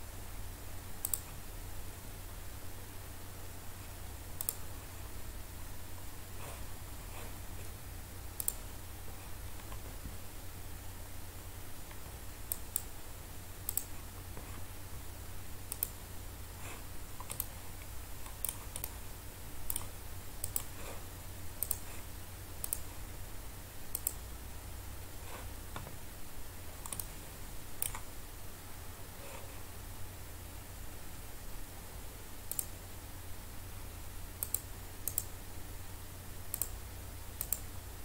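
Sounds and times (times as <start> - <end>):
steady low hum: 0.0 - 38.0
computer mouse clicking: 1.0 - 1.4, 4.4 - 4.7, 8.4 - 8.7, 11.9 - 12.9, 13.6 - 14.6, 15.7 - 16.0, 16.7 - 19.0, 19.6 - 21.0, 21.6 - 22.0, 22.6 - 22.9, 23.9 - 24.3, 26.8 - 27.2, 27.8 - 28.1, 32.5 - 32.8, 34.4 - 35.3, 36.5 - 36.8, 37.4 - 37.7.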